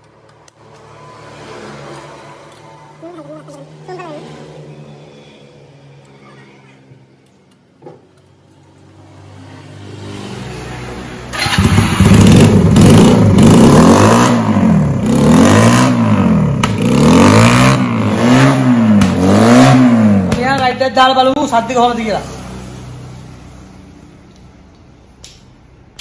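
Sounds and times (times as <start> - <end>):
motorcycle engine revving: 9.2 - 23.8.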